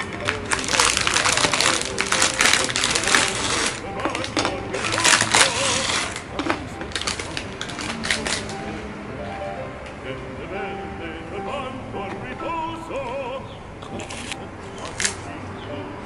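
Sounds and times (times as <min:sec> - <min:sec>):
plastic wrapper crinkling: 0:00.0 - 0:08.8, 0:13.9 - 0:15.3.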